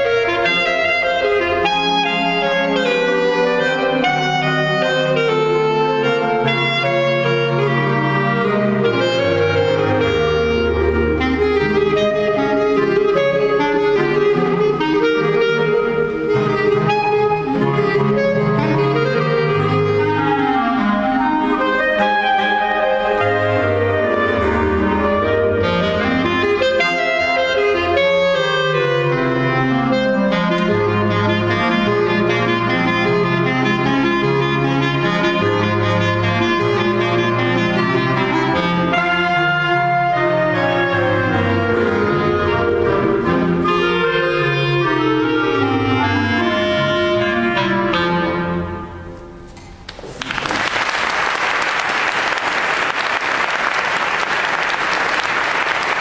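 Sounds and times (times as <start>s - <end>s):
clarinet ensemble playing: 0.0s - 49.9s
applause: 49.9s - 56.0s.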